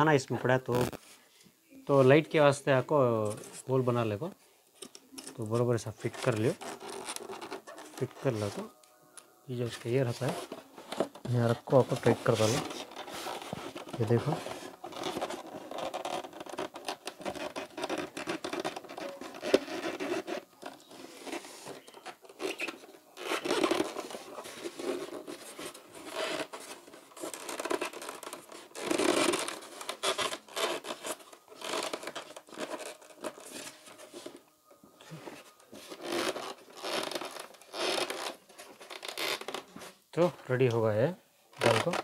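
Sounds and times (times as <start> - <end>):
plastic scratching on foam: 4.8 - 8.8, 9.6 - 34.4, 35.2 - 40.0, 41.6 - 42.0.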